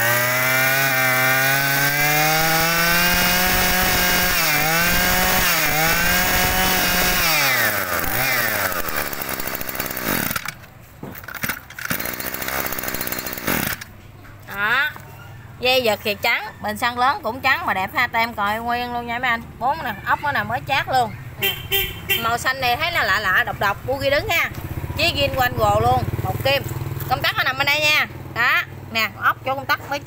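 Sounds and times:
brush-cutter engine revving: 0.0 - 13.9.

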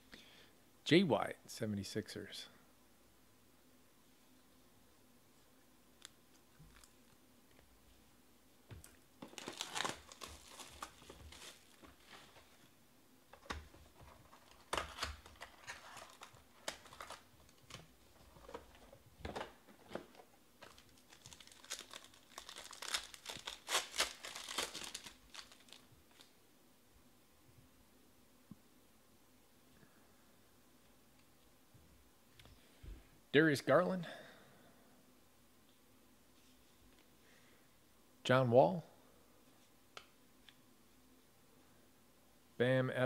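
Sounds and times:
card pack wrapper crinkling and tearing: 9.2 - 12.4, 13.4 - 18.7, 19.9 - 26.3.

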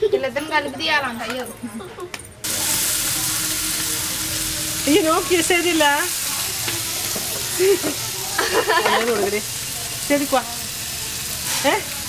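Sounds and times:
voices: 0.0 - 12.0
food sizzling in oil: 2.4 - 12.0.

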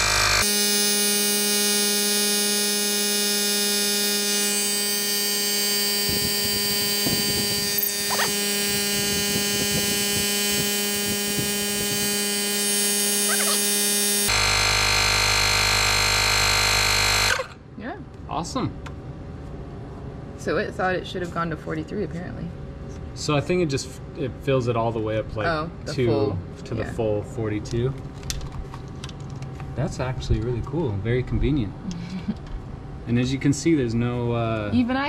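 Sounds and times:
small compressor humming: 0.0 - 18.0.

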